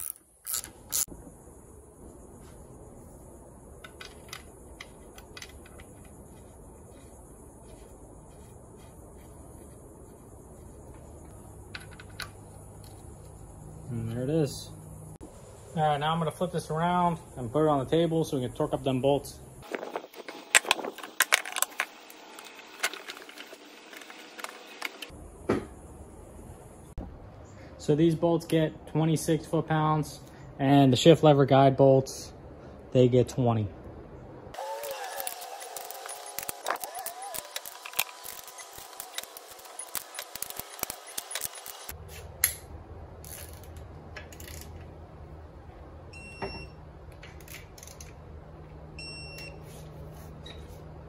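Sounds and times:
torque wrench ratcheting: 0:00.0 - 0:01.1, 0:34.8 - 0:41.9.

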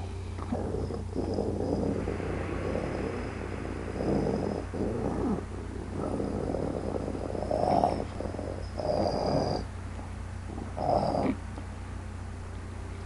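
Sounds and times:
person imitating wolf growl: 0:00.5 - 0:09.6.

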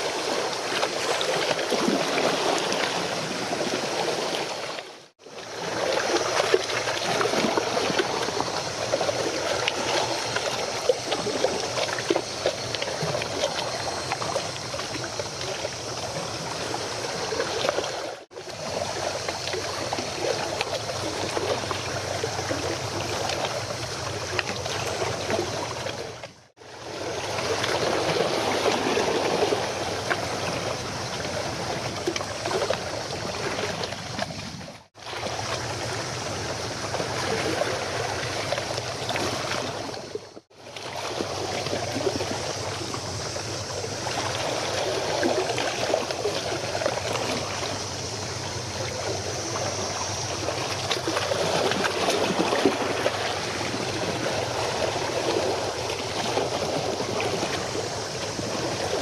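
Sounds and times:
water lapping and gurgling: 0:00.0 - 0:59.0.

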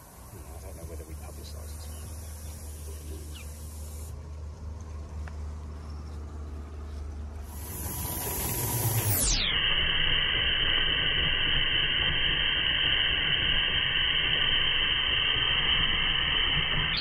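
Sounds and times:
steam hissing: 0:00.0 - 0:04.2, 0:07.4 - 0:17.0.

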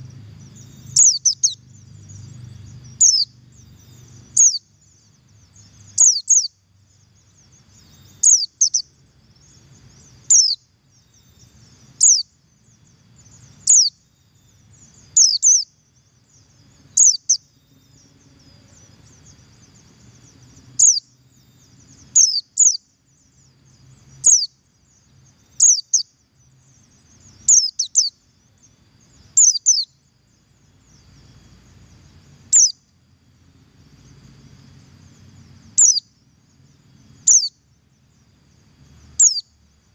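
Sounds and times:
bird giving sharp high calls: 0:00.8 - 0:01.6, 0:03.9 - 0:04.6, 0:05.9 - 0:06.5, 0:08.0 - 0:08.9, 0:10.3 - 0:10.6, 0:12.0 - 0:12.2, 0:20.8 - 0:21.0, 0:32.5 - 0:32.8.

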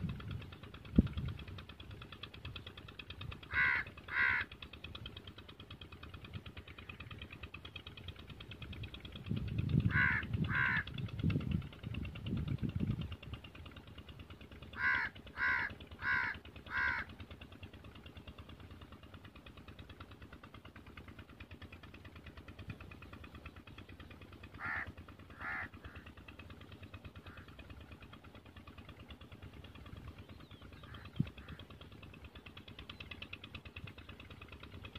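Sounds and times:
crow cawing: 0:03.5 - 0:04.6, 0:09.9 - 0:10.9, 0:14.7 - 0:17.2, 0:24.6 - 0:26.2, 0:27.2 - 0:27.5.

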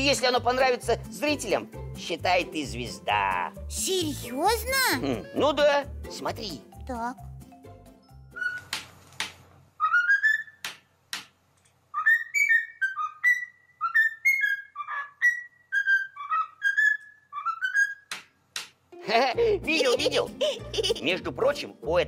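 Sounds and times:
cockatiel whistling a tune: 0:08.3 - 0:08.8, 0:09.8 - 0:10.6, 0:11.9 - 0:18.1.

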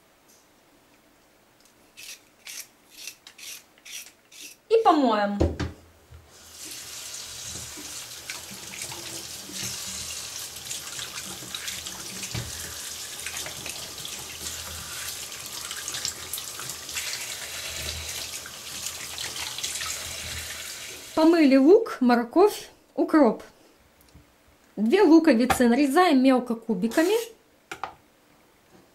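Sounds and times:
vegetables rinsed with splashes: 0:06.3 - 0:21.4.

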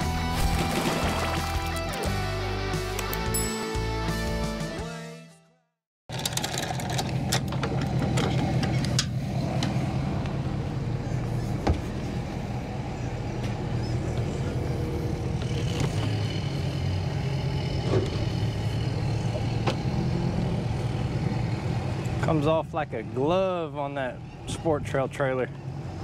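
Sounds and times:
outboard motor idling: 0:10.7 - 0:22.4.

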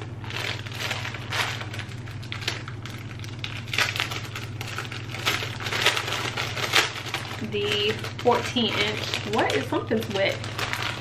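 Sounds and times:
plastic wrapping crinkling: 0:00.0 - 0:11.0
steady low hum: 0:00.0 - 0:11.0.

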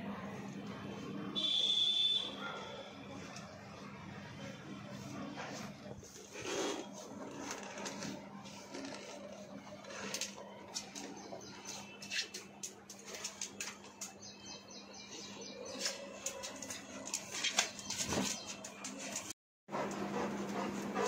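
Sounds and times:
towel rubbing wet dog coat: 0:04.9 - 0:10.3.

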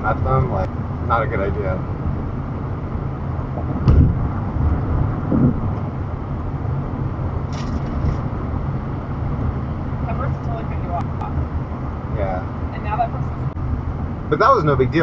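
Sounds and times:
road and tyre noise in car: 0:00.0 - 0:15.0
low thump: 0:03.6 - 0:05.9.

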